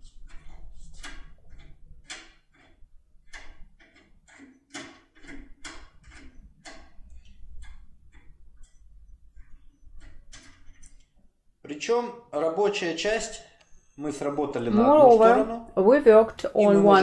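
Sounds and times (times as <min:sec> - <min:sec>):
lock pick clicking and scraping: 0:00.0 - 0:11.2.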